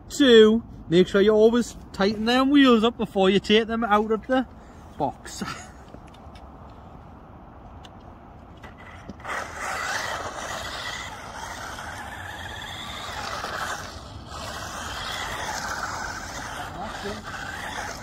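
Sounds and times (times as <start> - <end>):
tyre noise on asphalt: 4.0 - 18.0
toy car motor whirring: 8.6 - 18.0.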